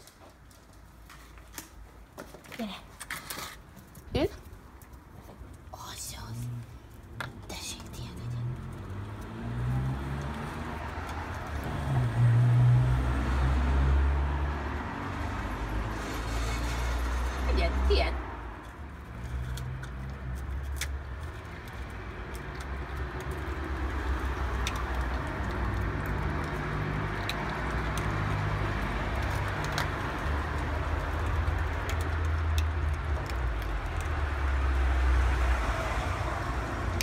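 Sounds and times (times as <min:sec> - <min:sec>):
outdoor background rumble: 0:00.1 - 0:37.0
dog crunching hard biscuit: 0:19.1 - 0:34.5.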